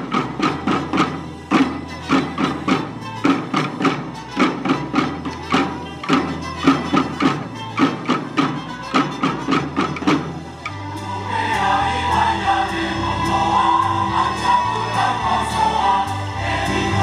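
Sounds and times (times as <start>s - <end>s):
drummers marching rhythm: 0.0s - 17.0s
choir singing: 10.6s - 17.0s.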